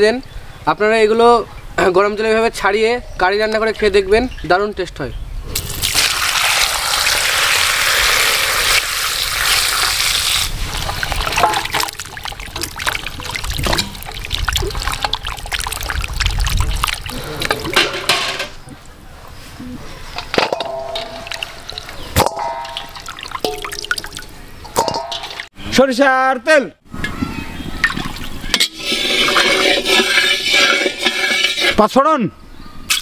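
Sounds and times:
water pouring into metal bowl: 0:05.6 - 0:18.3, 0:20.7 - 0:25.5, 0:27.8 - 0:31.8
wet splashes and clatters: 0:09.4 - 0:18.9, 0:20.2 - 0:25.5.

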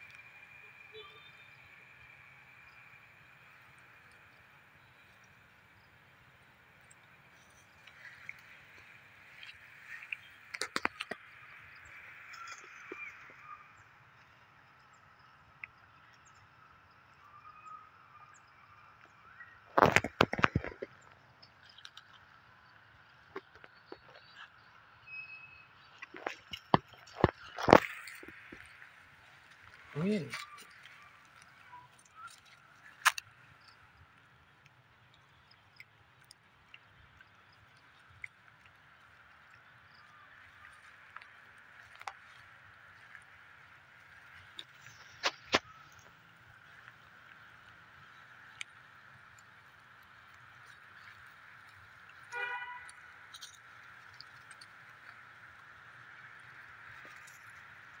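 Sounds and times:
faint chirps: 0:00.0 - 0:34.2
faint ticks: 0:25.9 - 0:58.0.

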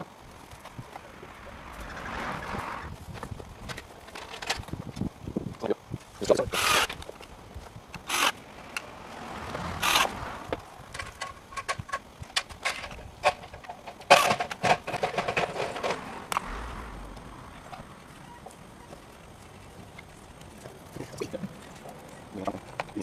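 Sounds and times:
hardware clicks and rattles: 0:03.1 - 0:08.9, 0:09.8 - 0:23.0
tools scraping: 0:11.0 - 0:16.5.

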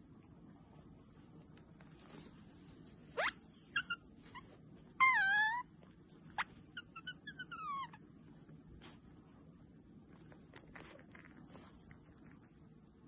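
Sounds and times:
otter squeaking and chirping: 0:03.1 - 0:08.0.

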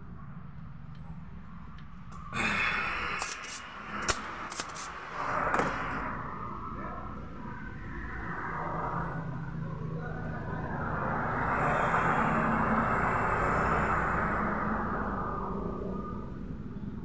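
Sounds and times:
desoldering pump rasping: 0:03.2 - 0:04.9.

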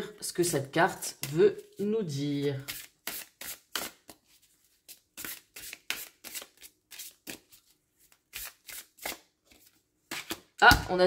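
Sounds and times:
cards being shuffled: 0:01.6 - 0:10.5.

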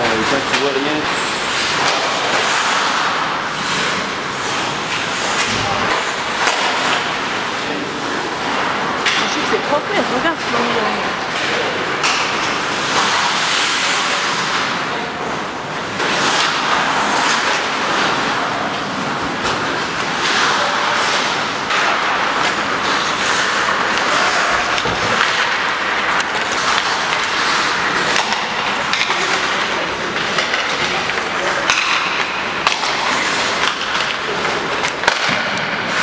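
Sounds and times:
hockey sticks and pucks knocking: 0:00.2 - 0:36.0
skate blades scraping ice: 0:01.0 - 0:07.1, 0:12.0 - 0:14.8, 0:16.0 - 0:35.3.

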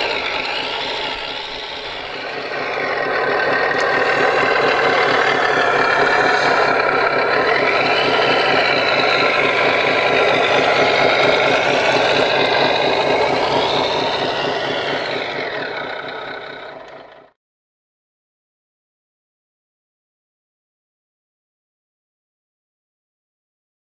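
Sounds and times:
motor whine: 0:00.0 - 0:17.3
simulated diesel engine idling: 0:00.0 - 0:17.4.

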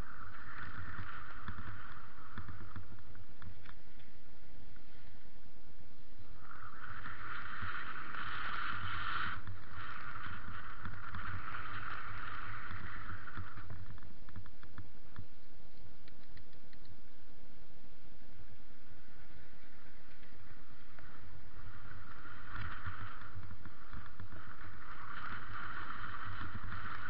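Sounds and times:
mountain bike rumble and rattle: 0:06.3 - 0:15.3, 0:19.5 - 0:27.0.

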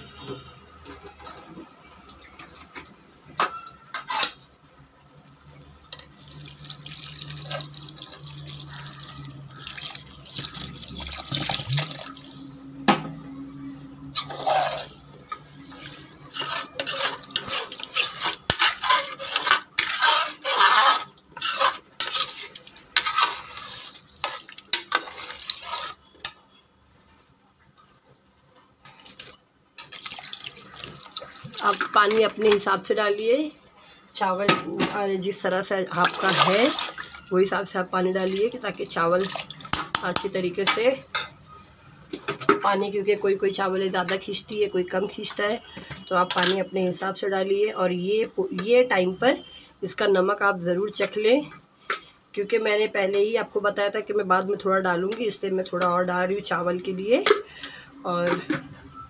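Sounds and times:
water pouring into a pot: 0:06.0 - 0:12.6, 0:29.8 - 0:31.8, 0:36.0 - 0:37.3.

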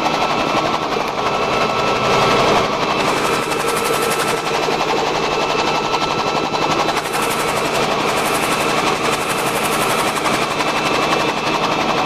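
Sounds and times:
helicopter engine and rotor chatter: 0:00.0 - 0:12.0
thin steady whine: 0:00.9 - 0:12.0.

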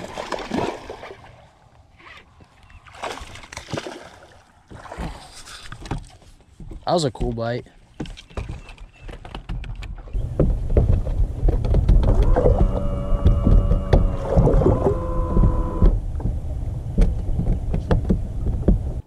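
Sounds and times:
scattered knocks: 0:09.1 - 0:14.1, 0:17.0 - 0:18.9
electric motor whine: 0:12.1 - 0:16.0.

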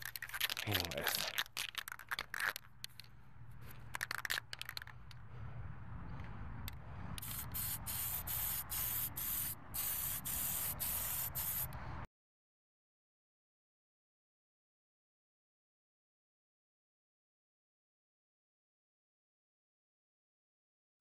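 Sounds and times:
spray paint can hissing: 0:00.0 - 0:02.6, 0:03.9 - 0:04.9, 0:07.2 - 0:11.8.

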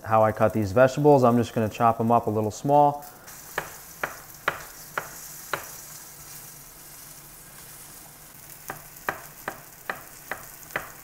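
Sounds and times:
meat sizzling in hot oil: 0:03.0 - 0:11.0
knife chopping on wooden board: 0:03.5 - 0:05.8, 0:08.6 - 0:11.0.

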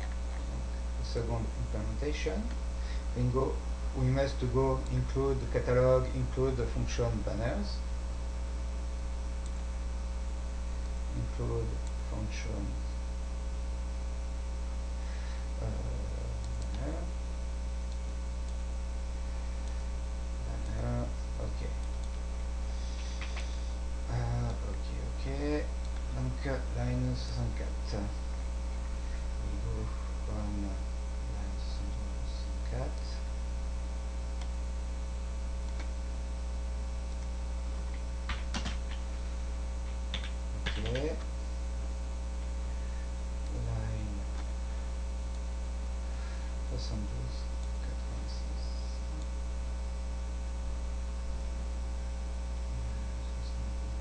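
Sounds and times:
electrical mains hum: 0:00.0 - 0:54.0
soft clicks: 0:09.4 - 0:09.7, 0:16.4 - 0:16.9, 0:34.0 - 0:34.6, 0:35.6 - 0:36.0, 0:37.1 - 0:39.1.

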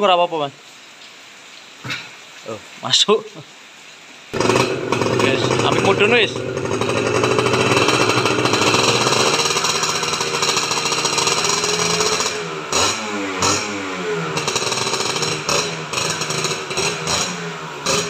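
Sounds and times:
motorcycle engine revving: 0:04.4 - 0:18.0.

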